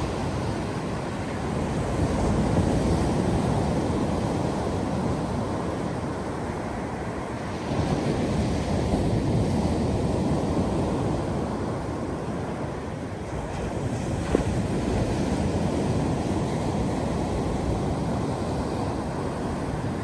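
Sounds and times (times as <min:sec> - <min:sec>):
waves breaking on a beach: 0:00.0 - 0:20.0.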